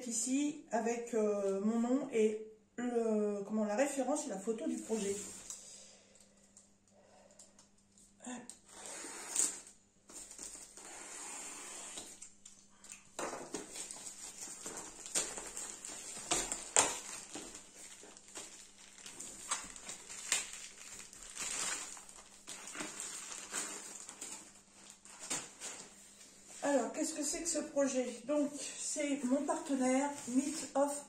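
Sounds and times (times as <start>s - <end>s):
cardboard parcel rustling: 4.6s - 5.6s, 9.3s - 11.1s, 11.8s - 31.0s.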